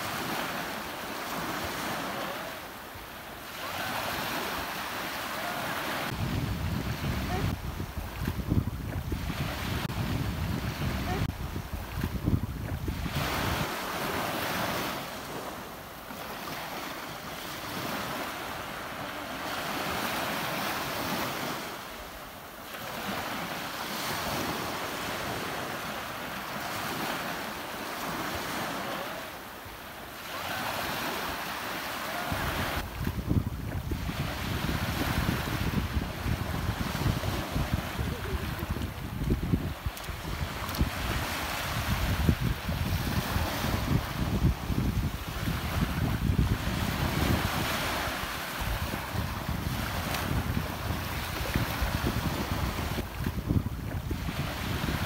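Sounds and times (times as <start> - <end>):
ocean surf washing: 0.0 - 55.0
wind buffeting microphone: 5.8 - 14.9, 32.3 - 55.0.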